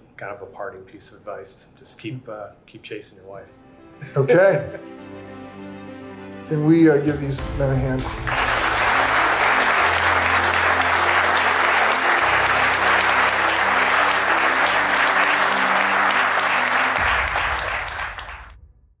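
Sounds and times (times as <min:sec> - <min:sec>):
audience applauding: 0:07.4 - 0:18.6.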